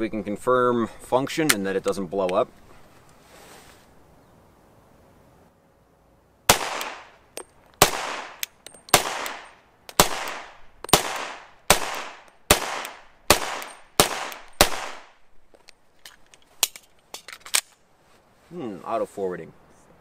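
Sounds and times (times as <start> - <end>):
pistol shots with echo: 6.5 - 7.2, 7.8 - 15.2.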